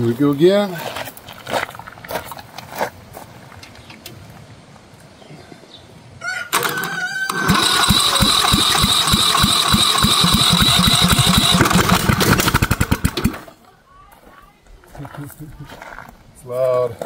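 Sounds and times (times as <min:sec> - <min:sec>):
starter motor whine: 0:06.6 - 0:13.4
engine chugging pulses: 0:07.3 - 0:13.5.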